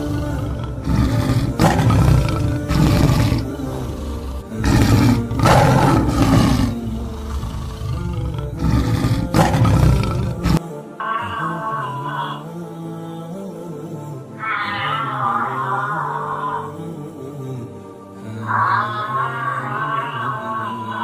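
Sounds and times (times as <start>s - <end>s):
lion roaring: 0.0s - 12.4s, 14.4s - 16.9s, 18.4s - 21.0s
background music: 0.0s - 21.0s.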